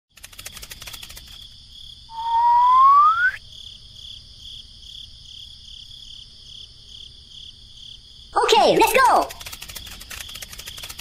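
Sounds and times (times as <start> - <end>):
crickets chirping: 0.2 - 11.0
rising whistle: 2.1 - 3.4.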